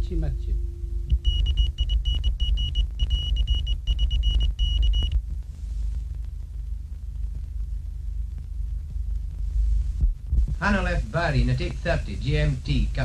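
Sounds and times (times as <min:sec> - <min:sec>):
old film soundtrack hum: 0:00.0 - 0:13.0
morse code beeps: 0:01.1 - 0:05.2.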